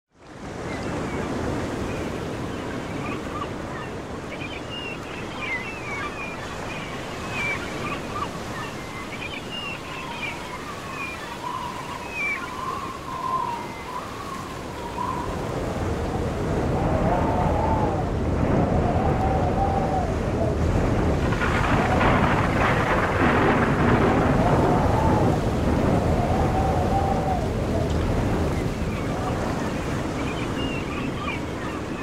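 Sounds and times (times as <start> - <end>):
thin wavering high calls: 2.5 - 15.6
steady rushing noise: 15.5 - 31.0.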